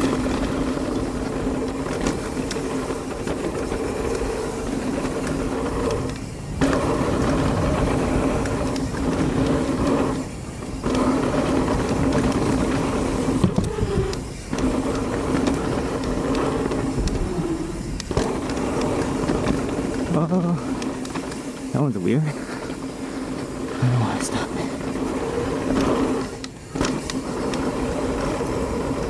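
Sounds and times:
wind on microphone: 0:00.0 - 0:20.7
bike tyres rumbling on dirt: 0:00.0 - 0:29.0
steady buzzing hum: 0:00.0 - 0:29.0.

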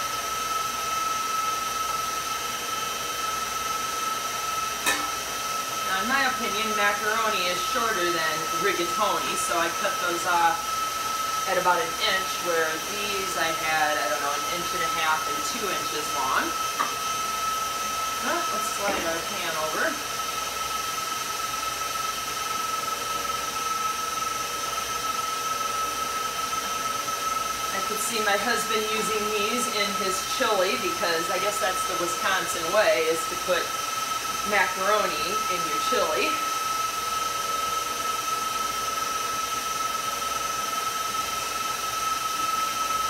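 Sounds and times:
stand mixer motor whining: 0:00.0 - 0:43.0.

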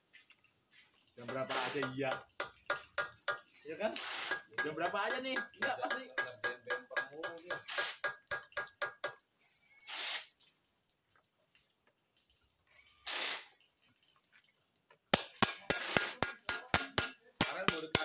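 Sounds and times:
hammer tapping on metal: 0:01.2 - 0:03.5, 0:04.2 - 0:09.2, 0:15.1 - 0:18.0
short hissing bursts: 0:04.0 - 0:04.4, 0:07.7 - 0:08.1, 0:09.8 - 0:10.4, 0:12.9 - 0:13.6.

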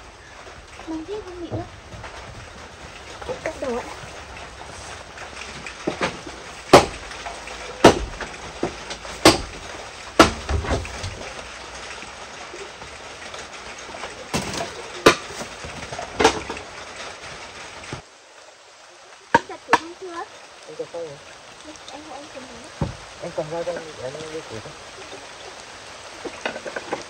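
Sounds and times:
rain hissing: 0:00.0 - 0:27.0
firewood being chopped: 0:01.6 - 0:11.6, 0:14.3 - 0:16.7, 0:22.8 - 0:23.1.

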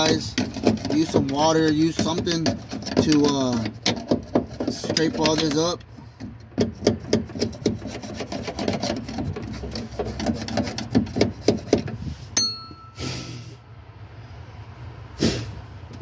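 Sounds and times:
screwdriver scraping dirt off metal: 0:00.0 - 0:12.1
sharp metallic ping: 0:12.4 - 0:13.2
short hiss: 0:13.0 - 0:13.6, 0:15.2 - 0:15.6.

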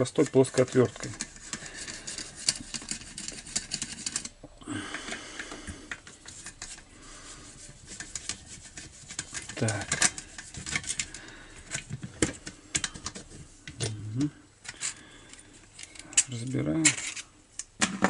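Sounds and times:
screwdriver metal clicks and scrapes: 0:00.2 - 0:04.4, 0:15.7 - 0:17.7.

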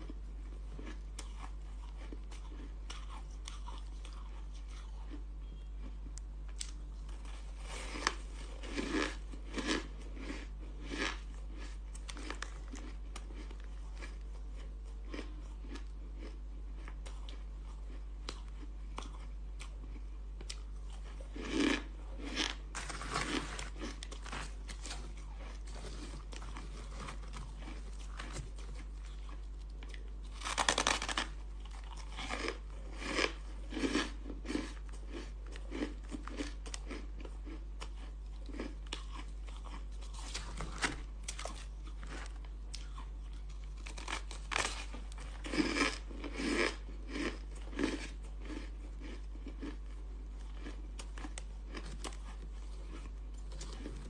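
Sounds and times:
crunching ice: 0:21.0 - 0:37.6, 0:38.4 - 0:49.9.

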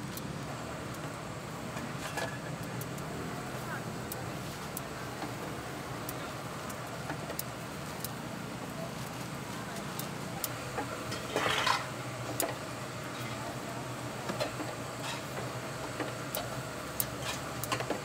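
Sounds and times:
skewers clinking on metal grill: 0:00.0 - 0:08.2, 0:09.8 - 0:13.6, 0:14.3 - 0:18.0
steady background noise: 0:00.0 - 0:18.0
metal clatter: 0:11.1 - 0:11.9.

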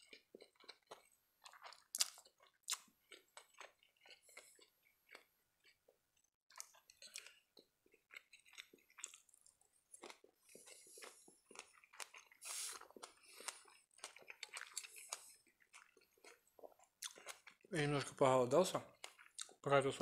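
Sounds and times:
chewing: 0:00.0 - 0:18.2, 0:18.8 - 0:19.6
wet mouth clicks and smacks: 0:00.6 - 0:05.3
man slurping spaghetti: 0:12.4 - 0:13.7.

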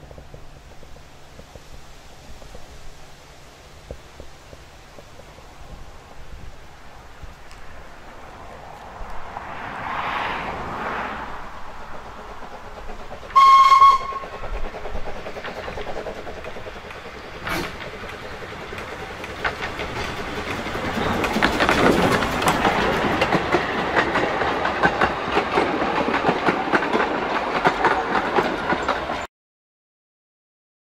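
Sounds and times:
train wheels clattering on rails: 0:00.0 - 0:29.3
steam locomotive whistle: 0:13.3 - 0:14.4.

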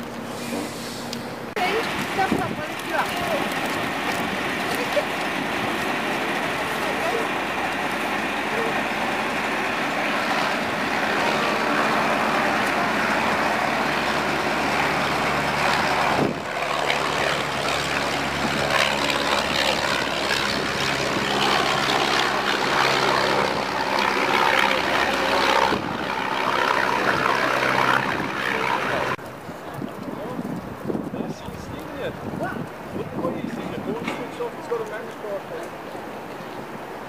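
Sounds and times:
biplane engine flying past: 0:00.0 - 0:37.0.

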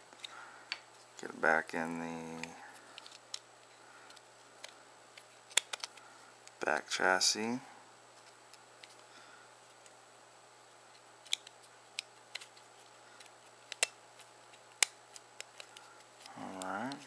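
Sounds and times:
plastic parts clicking: 0:04.1 - 0:06.0, 0:11.2 - 0:12.5, 0:13.2 - 0:14.0.

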